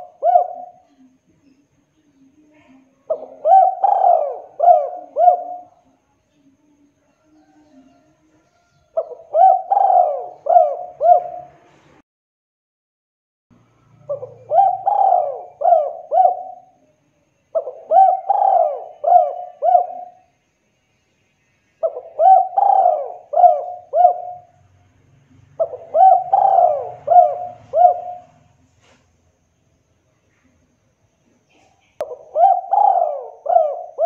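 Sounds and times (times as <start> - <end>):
dove cooing: 0.0 - 1.2, 3.0 - 6.0, 7.2 - 11.7, 14.0 - 16.8, 17.5 - 20.3, 21.8 - 24.6, 25.3 - 28.6, 31.5 - 34.0.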